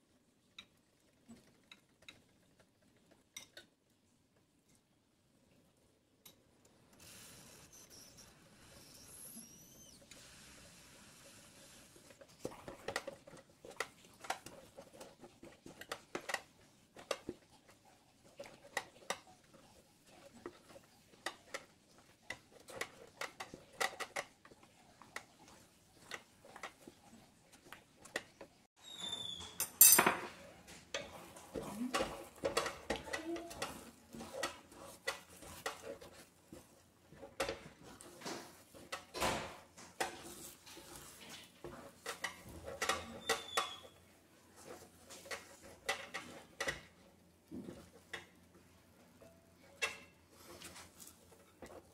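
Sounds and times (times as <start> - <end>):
spatula scraping a metal pot: 30.4 - 39.2, 39.9 - 47.0.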